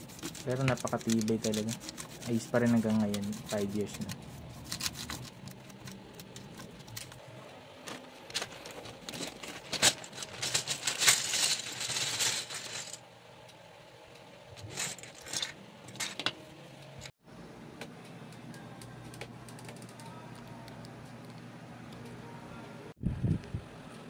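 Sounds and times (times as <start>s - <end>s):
keycaps clattering in plastic bag: 0.1s - 7.2s, 8.2s - 13.0s, 14.6s - 16.3s
plastic bag crinkling: 8.0s - 13.0s.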